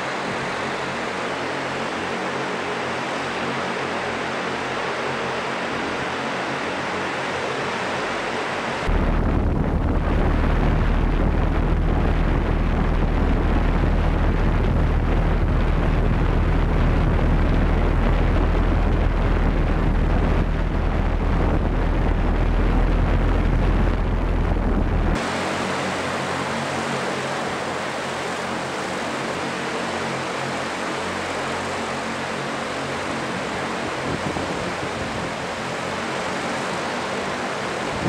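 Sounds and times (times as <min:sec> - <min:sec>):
electric rotors humming: 0:08.8 - 0:36.7
downwash buffeting microphone: 0:08.9 - 0:27.0.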